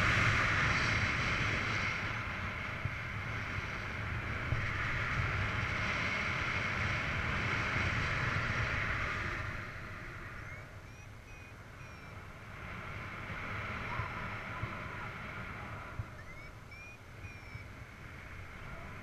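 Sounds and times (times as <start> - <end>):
wind rushing past camera: 0.0 - 19.0
faint short chirps: 10.4 - 12.2, 16.1 - 17.7.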